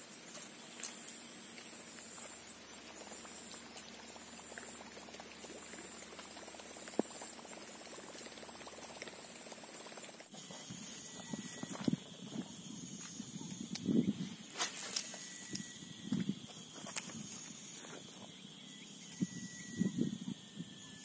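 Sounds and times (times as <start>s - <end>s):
high-pitched insect drone: 9.2s - 21.0s.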